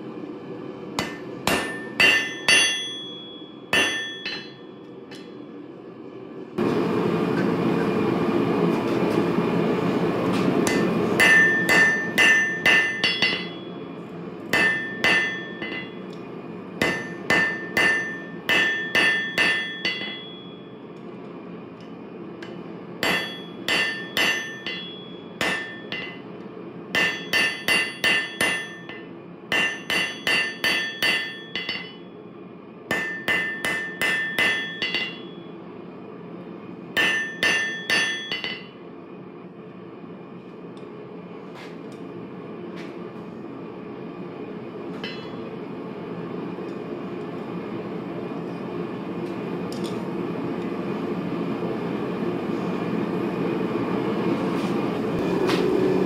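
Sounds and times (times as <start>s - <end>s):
hammer ringing on anvil: 1.0s - 5.4s, 10.6s - 13.9s, 14.5s - 16.2s, 16.8s - 20.8s, 22.4s - 26.3s, 26.9s - 32.1s, 32.9s - 35.6s, 37.0s - 38.8s, 45.0s - 45.5s.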